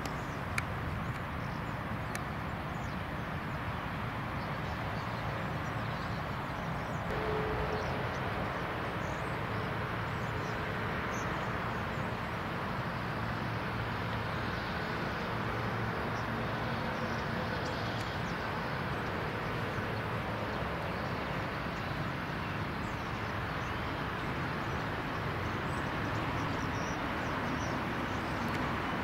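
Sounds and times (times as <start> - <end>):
faint tone: 7.1 - 9.5
low hum: 7.1 - 12.2.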